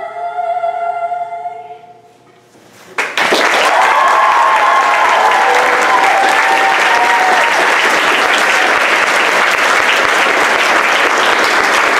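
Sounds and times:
audience applauding: 3.0s - 11.9s.

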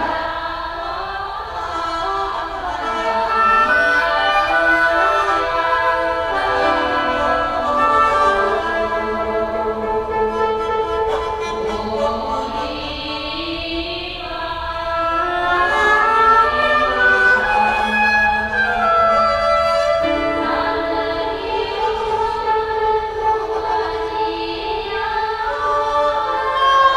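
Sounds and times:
chamber ensemble with electronics: 15.7s - 26.9s.

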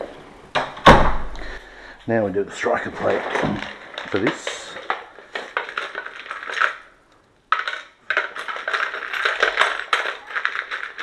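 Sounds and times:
metal screws rattling in plastic box: 2.8s - 11.0s.

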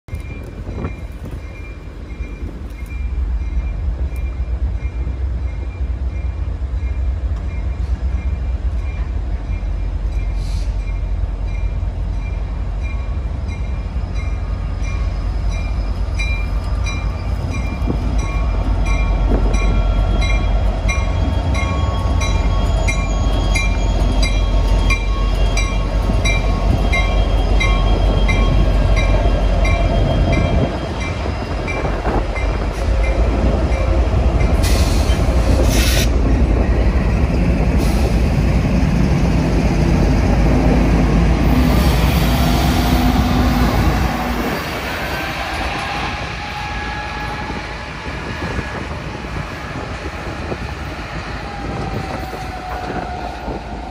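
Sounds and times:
diesel locomotive engine rumbling: 0.1s - 53.9s.

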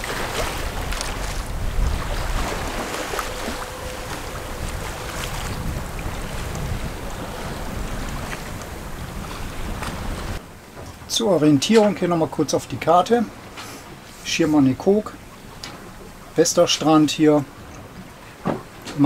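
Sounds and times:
wind buffeting microphone: 0.0s - 11.1s
water rushing along hull: 0.0s - 19.0s.

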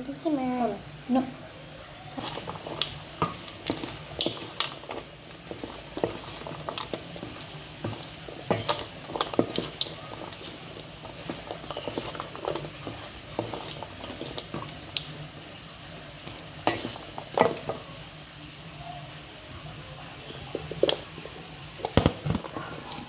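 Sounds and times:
popcorn rustling: 1.9s - 23.0s
spatula knocking metal bowl: 2.2s - 14.9s.

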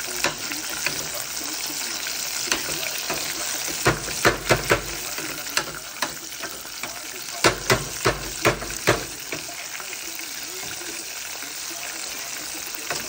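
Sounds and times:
chicken sizzling in hot oil: 0.0s - 13.0s.

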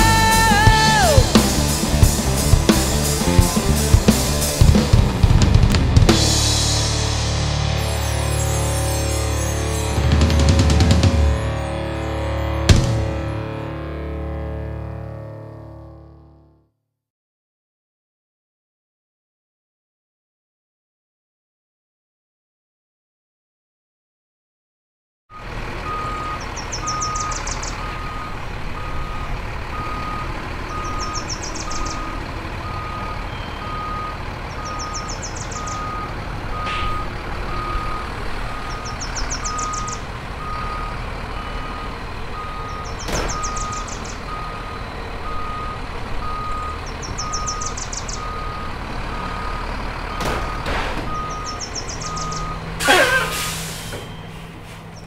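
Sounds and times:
high trill: 0.0s - 4.1s
low engine rumble: 0.0s - 13.6s, 25.4s - 55.0s
vehicle reversing alarm beeps: 25.3s - 54.6s
brief loud squeal: 52.8s - 54.8s.

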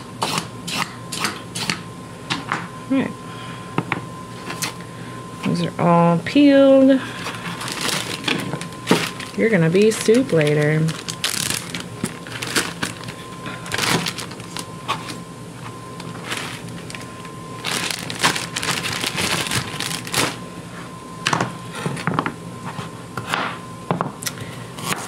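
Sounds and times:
plastic bag crinkling: 7.2s - 15.2s, 15.9s - 20.4s.

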